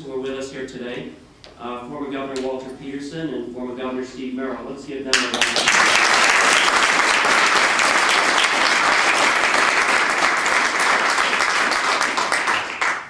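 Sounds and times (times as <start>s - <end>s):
crowd applauding: 5.1s - 13.0s.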